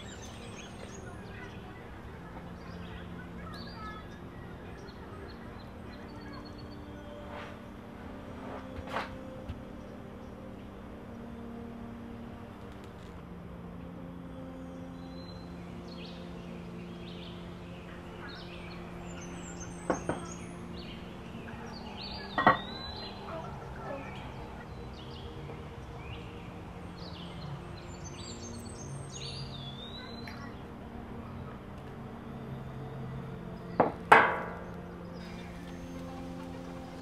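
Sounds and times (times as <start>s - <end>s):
small birds chirping: 0.0s - 13.2s, 14.0s - 37.0s.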